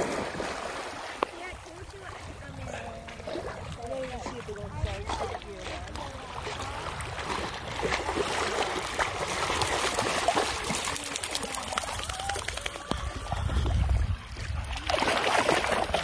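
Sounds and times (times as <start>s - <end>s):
dogs splashing through water: 0.0s - 16.0s
trickling water wash: 0.0s - 16.0s.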